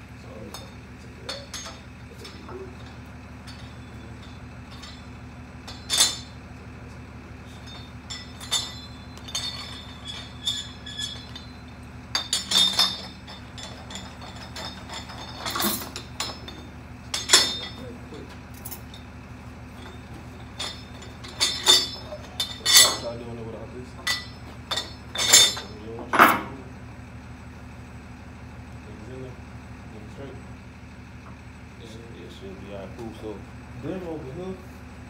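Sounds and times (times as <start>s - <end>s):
steady low hum: 0.0s - 35.0s
steel tools clinking on metal: 0.3s - 26.5s.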